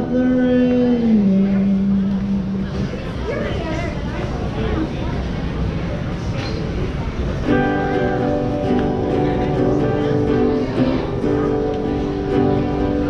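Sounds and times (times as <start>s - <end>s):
acoustic guitar strumming: 7.4s - 13.0s.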